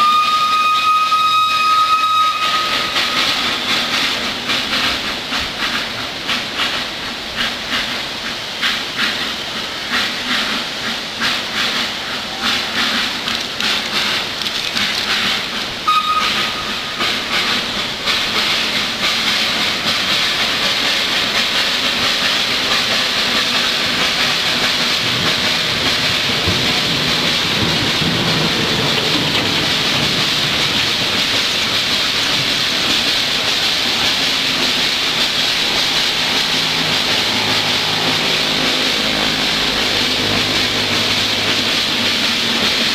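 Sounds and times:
high whistle peep: 0.0s - 3.0s, 15.9s - 16.6s
steam hissing: 0.0s - 42.9s
steam locomotive rhythmic beats: 0.0s - 42.9s.

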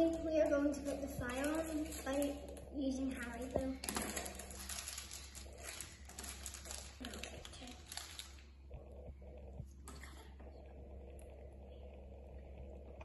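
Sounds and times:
plastic packet crinkling and tearing: 0.1s - 2.6s, 3.2s - 8.5s.

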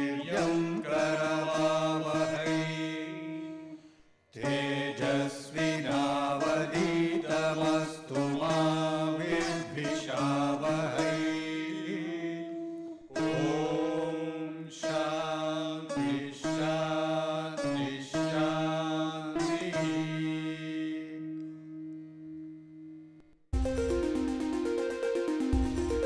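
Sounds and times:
theme music with low drone: 23.6s - 26.0s.

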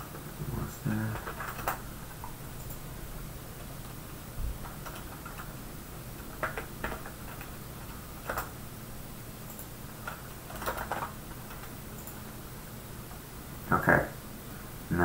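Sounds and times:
faint steady hum: 0.0s - 15.0s
keyboard and mouse clicks: 1.0s - 2.8s, 4.6s - 5.5s, 6.2s - 8.5s, 9.5s - 12.2s.

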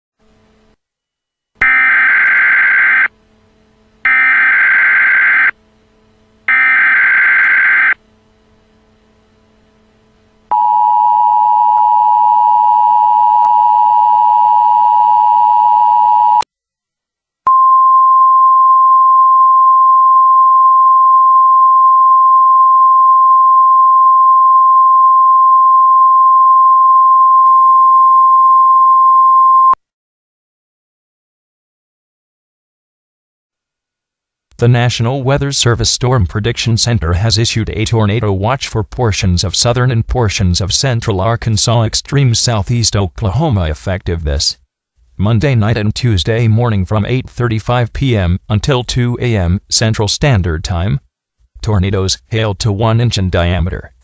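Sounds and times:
steady alert tone: 4.0s - 5.5s, 6.5s - 8.0s
screechy digital data bursts: 4.1s - 5.5s, 6.5s - 8.0s.

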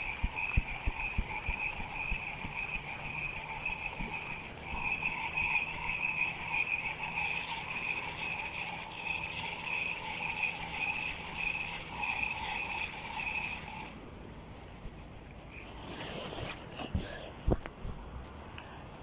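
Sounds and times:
fishing reel gears whirring: 0.0s - 14.1s.

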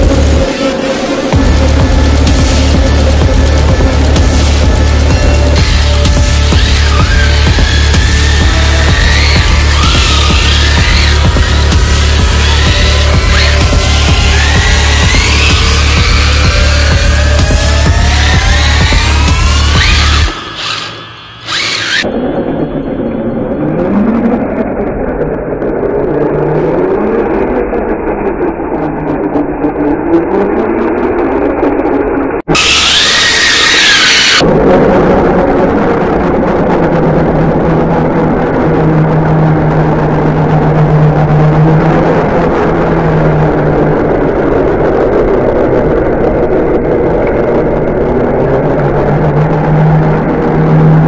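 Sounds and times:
electric toy car motor whirring: 19.8s - 22.1s.

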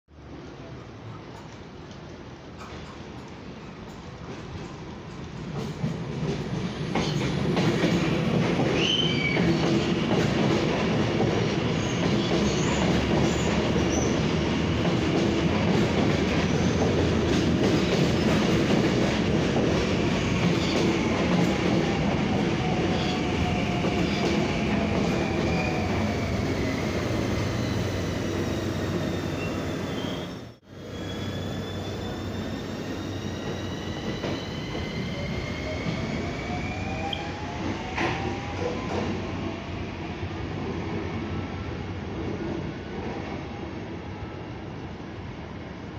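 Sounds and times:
train wheels rumbling on rail: 0.6s - 44.0s
high wheel squeal: 25.5s - 36.2s.

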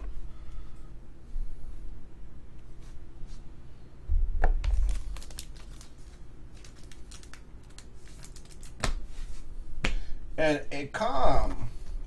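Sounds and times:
plastic sleeve crinkling: 4.6s - 8.8s.

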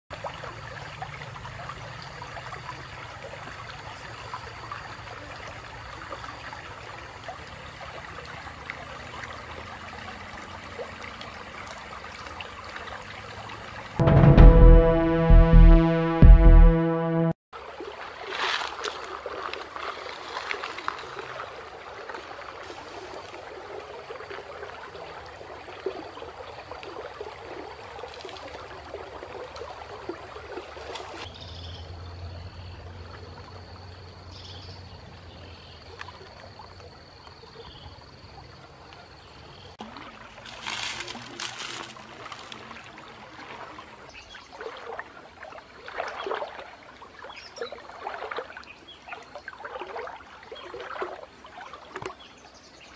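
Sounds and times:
stream water trickling: 0.1s - 14.0s, 17.6s - 52.9s
person wading through water: 17.6s - 31.3s, 39.8s - 52.2s.

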